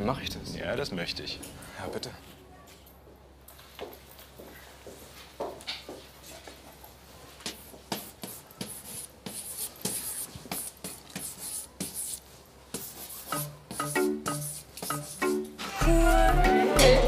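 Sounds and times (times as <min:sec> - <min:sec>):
chalk scratching on blackboard: 0:07.5 - 0:15.4.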